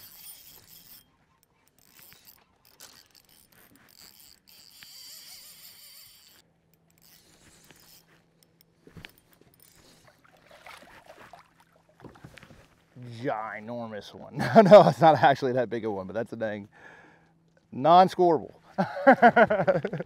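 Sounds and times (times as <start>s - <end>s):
fishing reel whirring and clicking: 0.0s - 10.2s.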